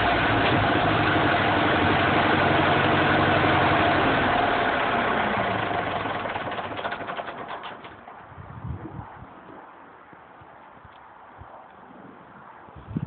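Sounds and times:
tractor diesel engine idling: 0.0 - 8.2.

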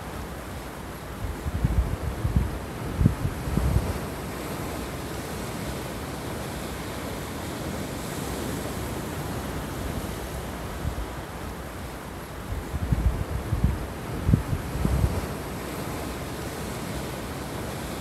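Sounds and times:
surf washing around rocks: 0.0 - 18.0
wind buffeting microphone: 1.2 - 6.6, 12.4 - 18.0.

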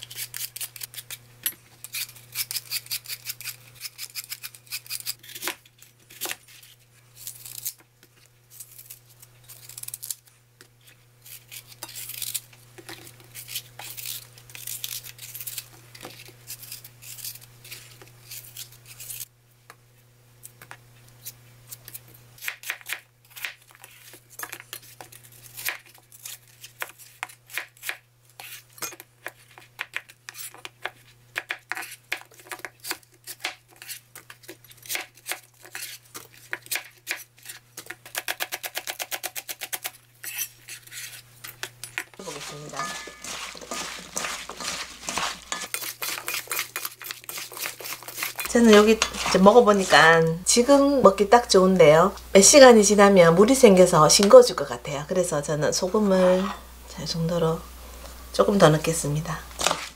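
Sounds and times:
knife slicing fruit: 42.2 - 50.5, 59.6 - 59.9.

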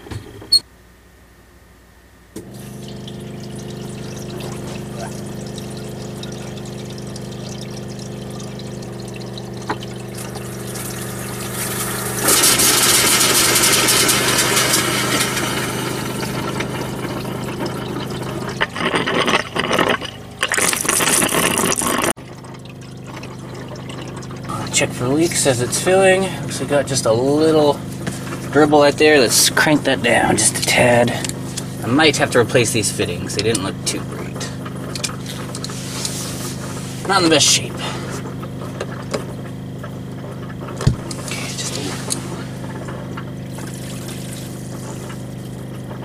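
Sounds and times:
water pump humming: 2.4 - 46.0
water rushing from tap: 2.4 - 46.0.

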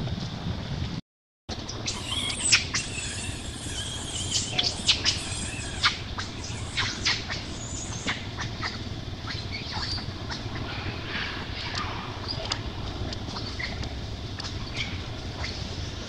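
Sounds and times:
low outdoor background: 0.0 - 16.0
baby monkey squeaking: 1.7 - 10.5, 13.4 - 15.7.

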